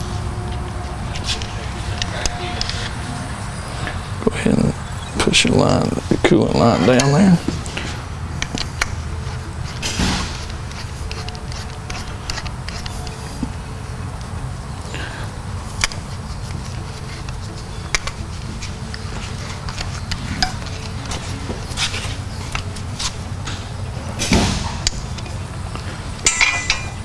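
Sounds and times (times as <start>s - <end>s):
steady low hum: 0.0s - 27.0s
allen key clicking on bolts: 26.2s - 27.0s.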